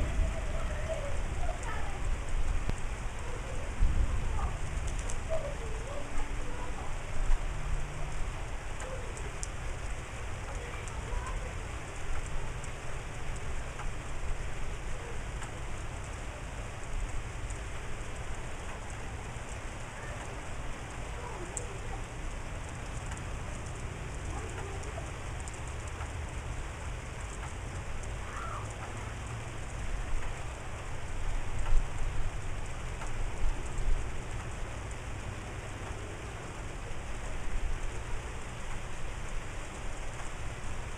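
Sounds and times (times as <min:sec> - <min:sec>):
low rumble: 0:00.0 - 0:16.1
rain falling: 0:00.0 - 0:40.9
faint bird calls: 0:28.2 - 0:28.8.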